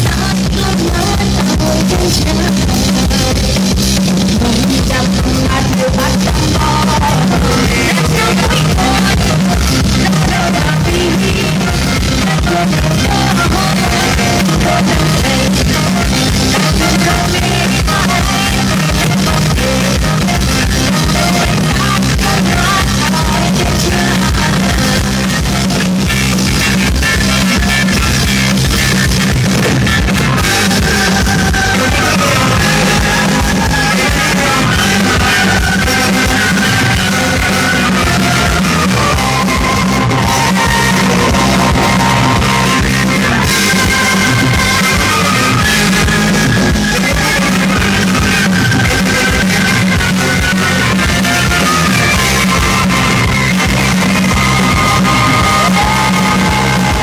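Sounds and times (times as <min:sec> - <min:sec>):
woman singing: 0:00.0 - 0:25.3
rock band playing live: 0:00.0 - 0:57.0
tenor saxophone melody: 0:38.1 - 0:46.4.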